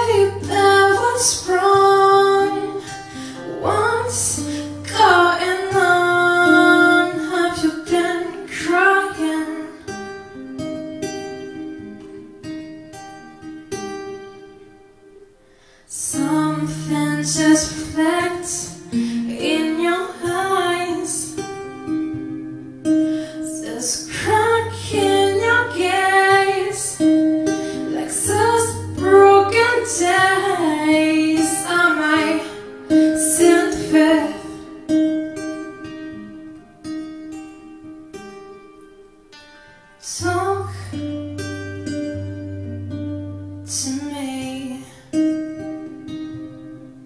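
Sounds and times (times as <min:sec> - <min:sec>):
woman singing: 0:00.0 - 0:10.3, 0:15.9 - 0:36.2, 0:40.0 - 0:42.8, 0:43.6 - 0:46.1
plucked acoustic guitar: 0:00.0 - 0:15.3, 0:16.0 - 0:47.0.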